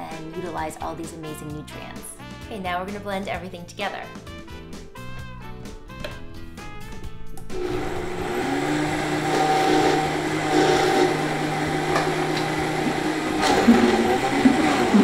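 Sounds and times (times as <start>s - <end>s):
blender motor whine: 7.4s - 15.0s
blender churning: 7.5s - 15.0s.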